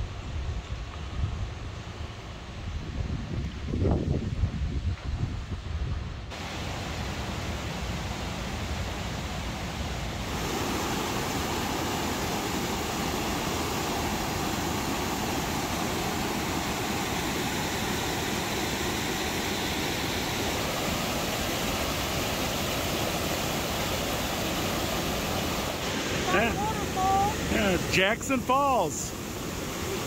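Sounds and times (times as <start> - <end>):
waterfall rushing: 6.3 - 30.0.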